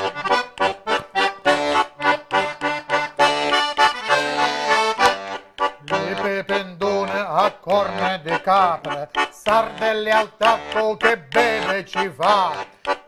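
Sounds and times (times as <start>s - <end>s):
button accordion playing chords: 0.0s - 13.0s.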